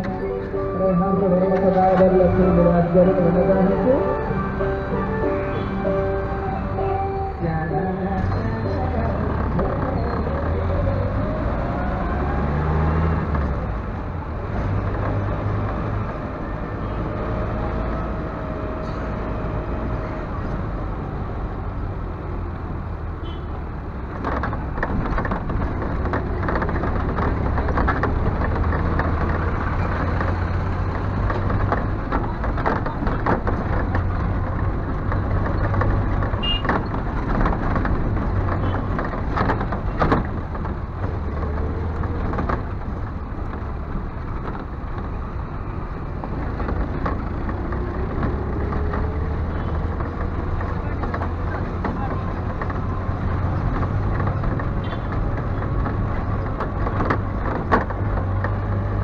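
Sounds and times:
minibus engine rumbling: 0.0 - 59.0
knocks and rattles: 24.0 - 59.0.

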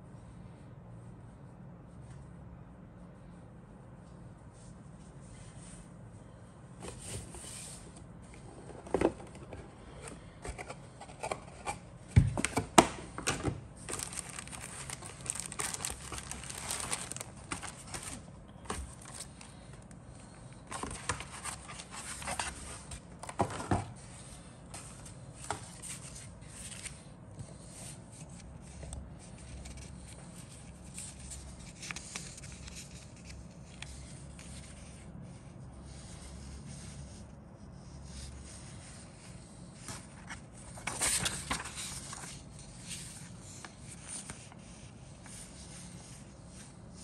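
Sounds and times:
plastic bag crinkling: 13.8 - 19.8.

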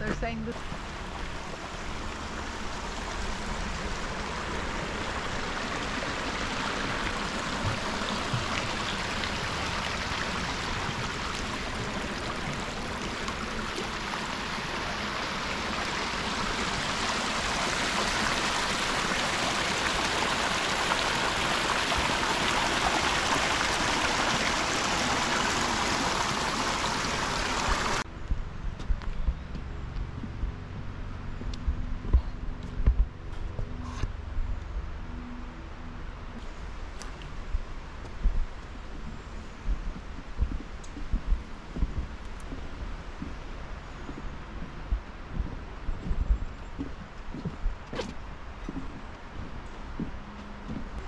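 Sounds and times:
creek water rushing: 0.0 - 28.0.

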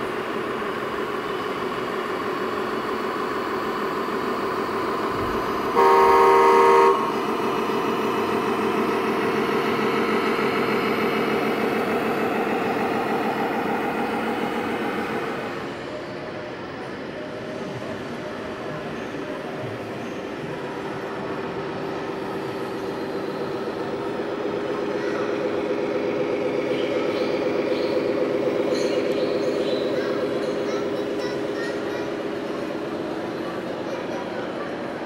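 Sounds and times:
diesel engine sound: 0.0 - 35.0
air horn blast: 5.7 - 7.2.

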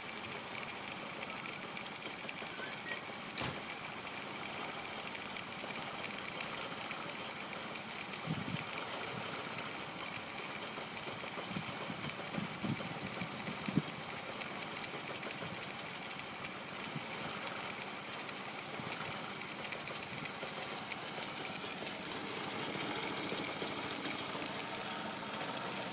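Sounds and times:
motorcycle engine idling roughly: 0.0 - 25.9
low engine knocks: 3.4 - 3.7.

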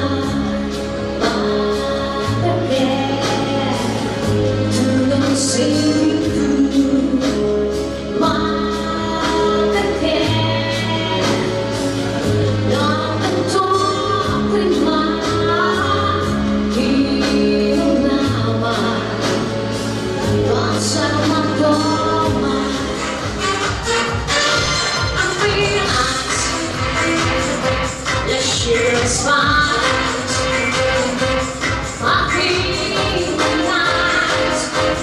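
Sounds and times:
woman singing: 0.0 - 23.9, 24.7 - 35.0
backing track with beat and bass: 0.0 - 35.0.

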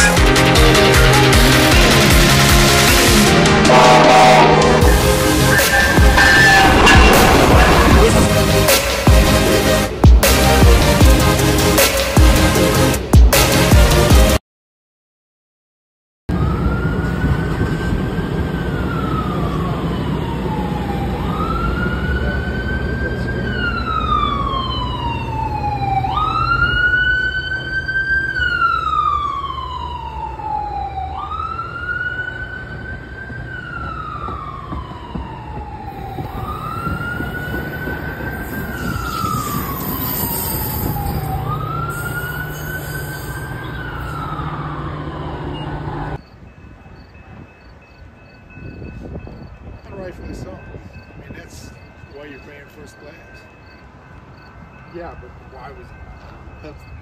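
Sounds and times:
siren wailing: 0.9 - 9.4, 16.3 - 46.2
train rumbling past: 3.5 - 10.0.

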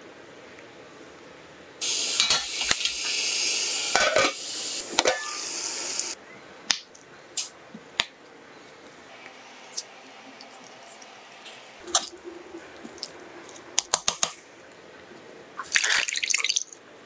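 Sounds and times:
steam hissing: 1.8 - 6.2.

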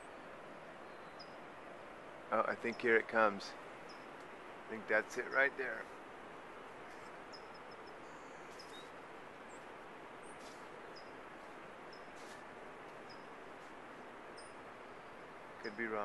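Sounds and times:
distant ocean surf: 0.0 - 16.0
high bird chirps: 6.9 - 9.6, 13.0 - 13.4.

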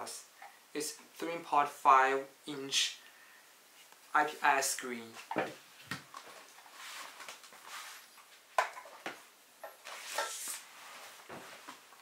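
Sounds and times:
soft rustling: 5.0 - 9.0, 9.8 - 12.0.

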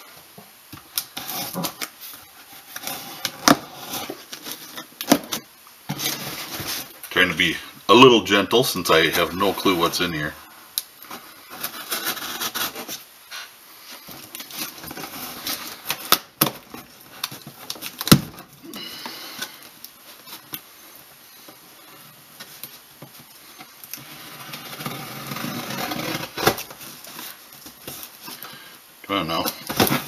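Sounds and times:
cardboard and tape scraping: 1.0 - 7.0, 11.1 - 18.2, 23.5 - 28.5.

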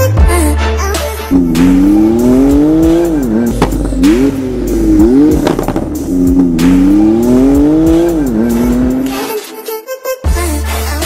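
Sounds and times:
car engine accelerating hard: 1.3 - 9.3.

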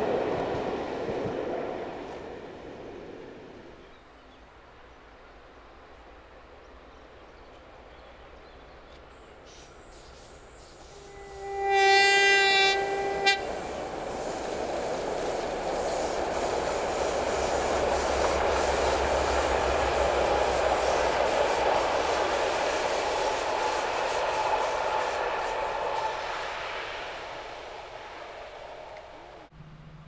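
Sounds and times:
train rolling over bridge: 0.0 - 3.9, 5.6 - 29.8
locomotive horn blast: 10.8 - 13.8.

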